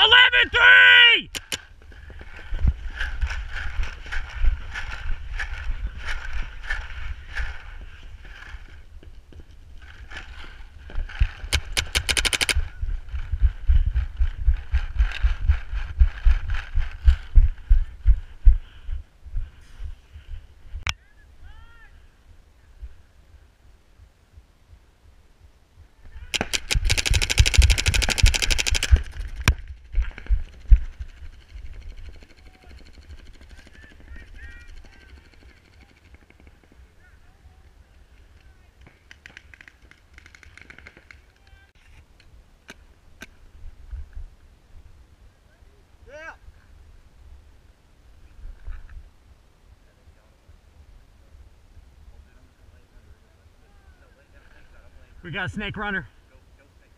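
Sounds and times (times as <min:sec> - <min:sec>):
paintball marker firing: 0:01.3 - 0:01.7, 0:11.4 - 0:12.7, 0:26.3 - 0:29.6
wind rumble on microphone: 0:01.6 - 0:20.9, 0:22.6 - 0:35.0, 0:43.4 - 0:45.4.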